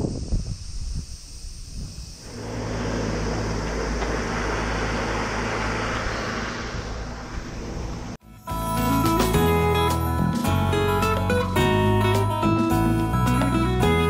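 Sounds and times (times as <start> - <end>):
vehicle engine and road noise: 2.2 - 8.2.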